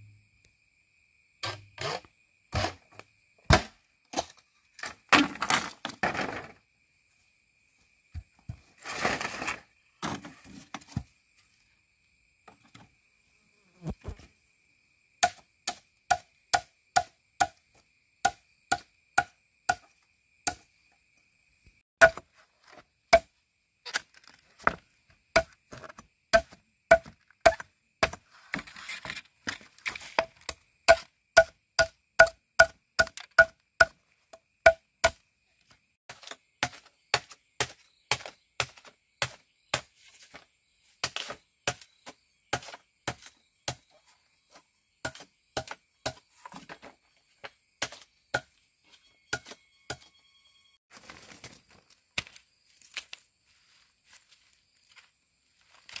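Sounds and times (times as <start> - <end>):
chopping strikes on bamboo: 3.5 - 4.4, 15.2 - 17.6, 18.2 - 19.9, 22.0 - 22.3, 25.4 - 28.2, 30.2 - 34.0, 34.7 - 35.2, 36.1 - 39.9, 41.0 - 41.9, 42.5 - 43.8, 45.0 - 46.2, 47.8 - 48.5.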